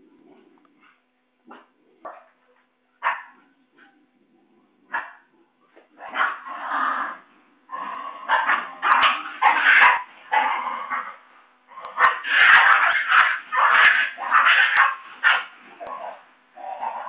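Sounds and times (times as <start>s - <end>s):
puppies yipping and yelping: 8.3s - 11.0s, 11.8s - 17.0s.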